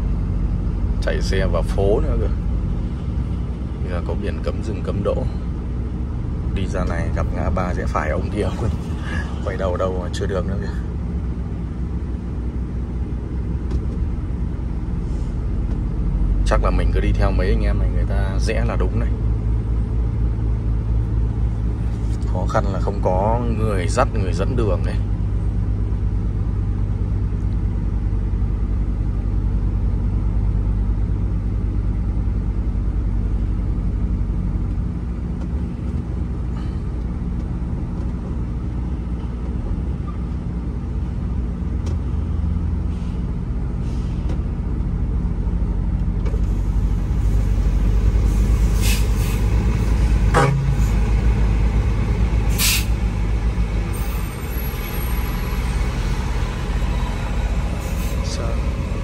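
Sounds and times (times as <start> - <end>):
diesel truck engine running: 0.0 - 59.0
air brake hisses: 42.9 - 44.3, 48.2 - 49.5, 52.5 - 53.0.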